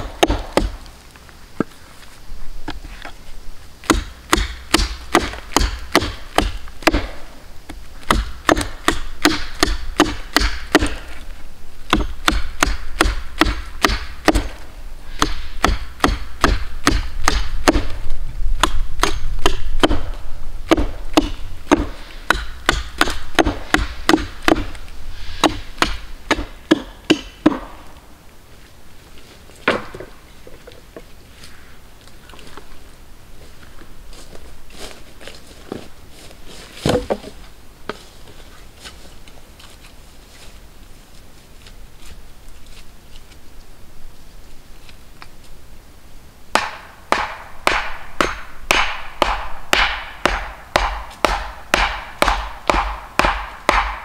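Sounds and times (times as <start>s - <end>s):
hatchet chopping wood: 0.0s - 0.8s, 3.8s - 7.2s, 8.0s - 11.2s, 11.9s - 14.6s, 15.2s - 18.0s, 18.6s - 24.8s, 25.4s - 27.8s, 36.8s - 37.4s, 46.5s - 54.0s.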